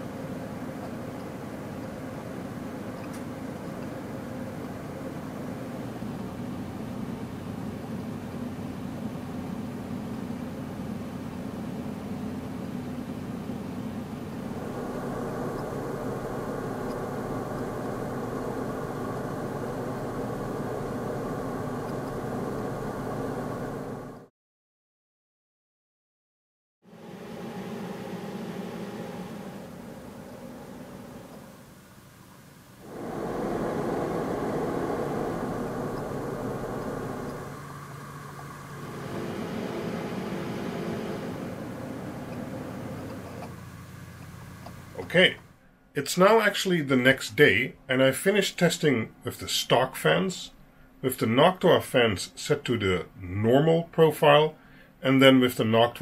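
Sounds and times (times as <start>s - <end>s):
low humming tones: 0.0s - 24.3s, 26.9s - 45.9s
server fans whooshing: 0.0s - 24.3s, 26.9s - 47.5s.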